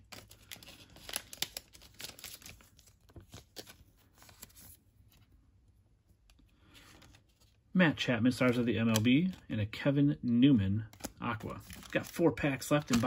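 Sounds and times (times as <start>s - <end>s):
cards shuffling: 8.3s - 9.5s, 10.3s - 13.0s.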